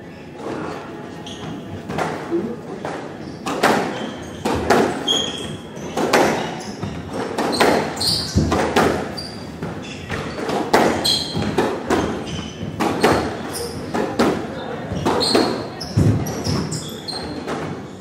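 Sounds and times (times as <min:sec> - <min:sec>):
shoes squeaking on hardwood: 0:00.4 - 0:18.0
squash ball cracking off rackets: 0:06.0 - 0:12.2.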